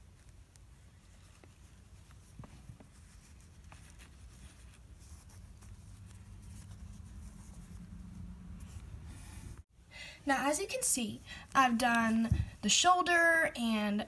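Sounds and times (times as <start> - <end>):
scratching and rustling of fabric: 0.0 - 9.7.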